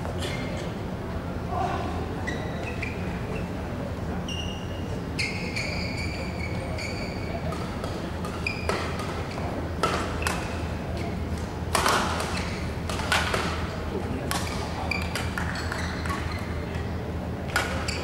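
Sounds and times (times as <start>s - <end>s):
shoes squeaking on court: 2.2s - 3.6s, 4.3s - 9.5s, 14.5s - 16.6s, 17.5s - 18.0s.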